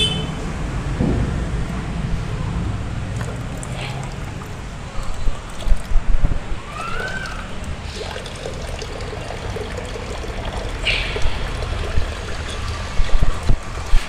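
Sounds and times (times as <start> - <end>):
coolant trickling into metal pot: 3.1 - 14.0.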